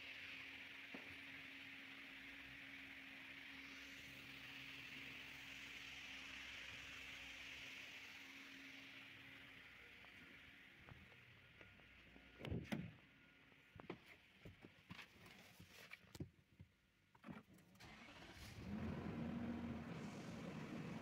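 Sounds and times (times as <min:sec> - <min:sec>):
car engine cranking and running: 0:17.5 - 0:21.0.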